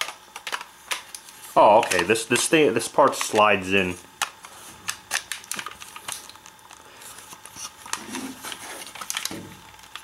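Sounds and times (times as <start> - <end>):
plastic toy clicks and rattles: 0.0 - 1.2.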